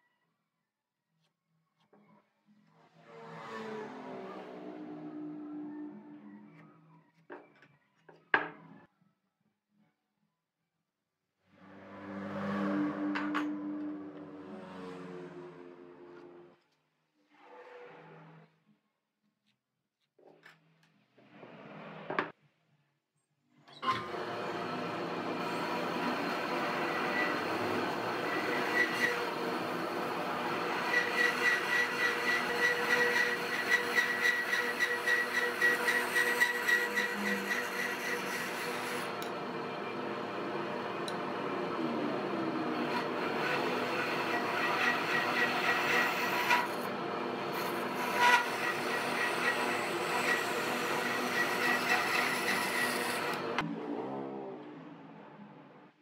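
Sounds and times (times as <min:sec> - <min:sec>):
band saw cutting wood: 0:23.8 - 0:53.7.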